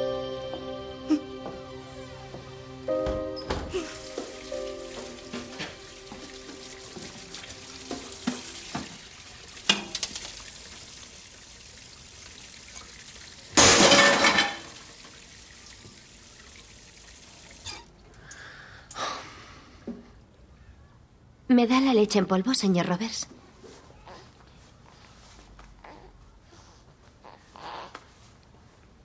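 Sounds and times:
tap water rushing: 2.2s - 18.2s
glass and dishes clinking: 13.6s - 14.7s.

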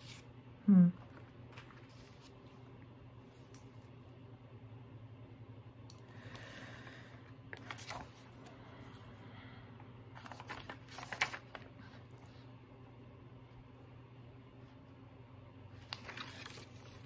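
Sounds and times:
faint low hum: 0.0s - 17.0s
paper rustling stickers peeled: 7.6s - 8.2s, 10.2s - 11.7s, 15.8s - 17.0s.

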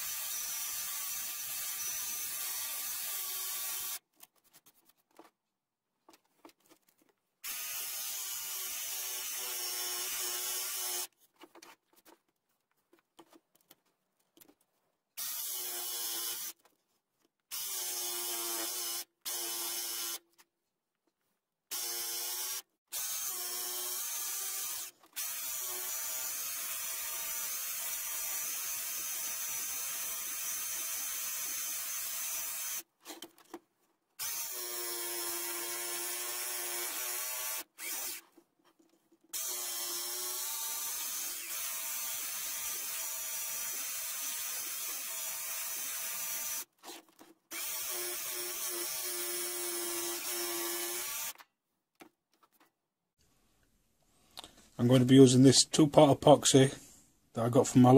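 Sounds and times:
electric jigsaw cutting: 0.0s - 4.0s, 7.4s - 11.1s, 15.2s - 16.6s, 17.5s - 20.2s, 21.7s - 32.8s, 34.2s - 38.2s, 39.4s - 46.7s, 47.5s - 51.4s.

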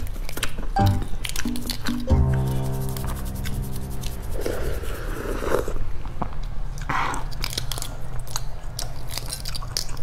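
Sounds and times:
eggshell crackling: 0.0s - 6.5s
chewing: 0.0s - 10.0s
sucking sound: 2.2s - 6.0s.

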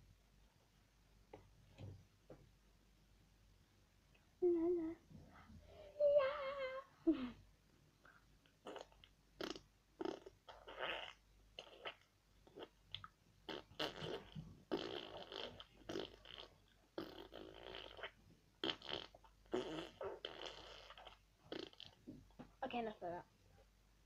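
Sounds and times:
girl blowing raspberries: 8.6s - 12.8s, 13.5s - 21.9s.

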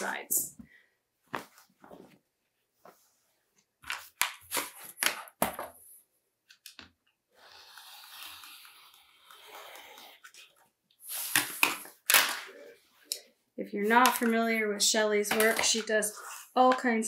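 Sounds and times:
rotary cutter cutting fabric: 7.4s - 10.0s.

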